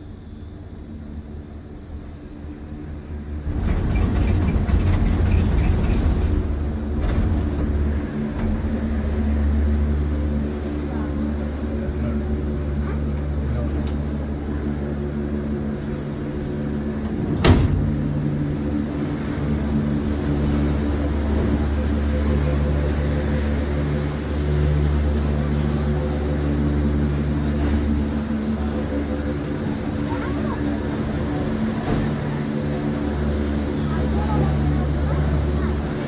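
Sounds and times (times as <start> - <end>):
vehicle engine humming: 2.6 - 36.0.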